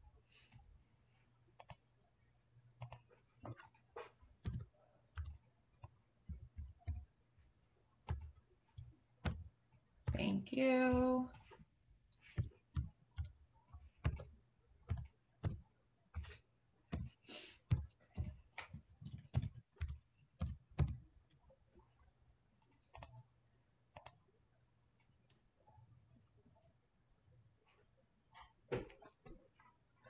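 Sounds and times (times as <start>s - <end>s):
computer keyboard typing: 1.6s - 1.9s, 2.8s - 7.1s, 8.0s - 10.2s, 12.2s - 21.1s, 22.6s - 23.3s, 23.9s - 24.3s.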